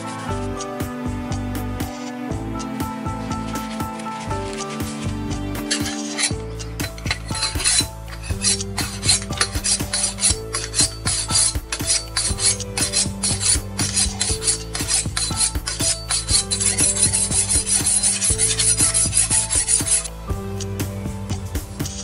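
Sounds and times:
knife scraping on honing rod: 5.6 - 20.1.

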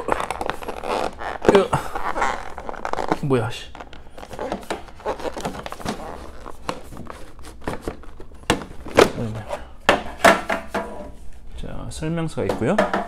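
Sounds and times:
hands handling plastic case: 2.8 - 11.0.

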